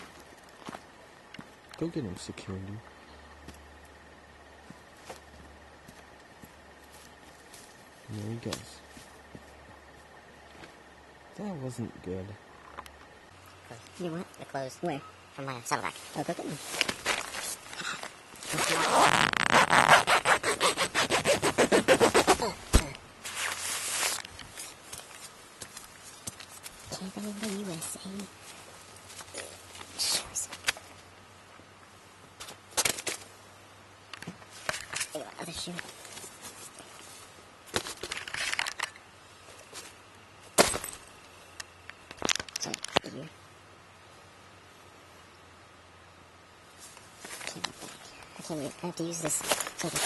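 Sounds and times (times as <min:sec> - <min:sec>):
rustling and clicking of handling: 0:15.8 - 0:19.9, 0:34.1 - 0:40.1, 0:46.8 - 0:48.4, 0:49.0 - 0:50.0
zipper rasping: 0:18.4 - 0:22.6
fabric rustling: 0:23.2 - 0:27.7.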